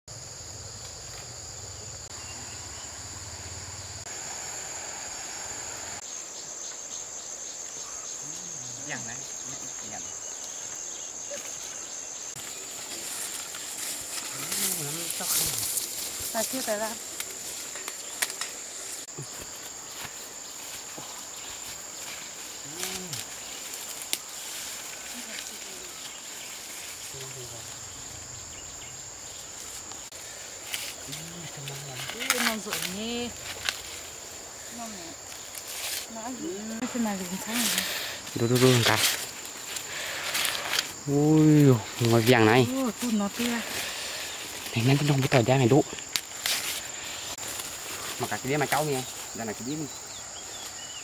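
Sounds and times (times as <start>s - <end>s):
insects chorus: 0.1s - 51.0s
footsteps on dry cornstalks: 12.4s - 27.2s.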